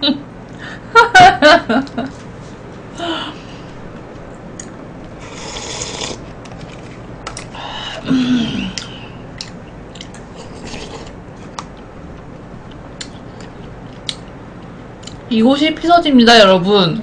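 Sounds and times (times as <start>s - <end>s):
slurp from a cup: 5.2s - 6.3s, 10.4s - 11.2s
soft chewing: 8.7s - 15.3s.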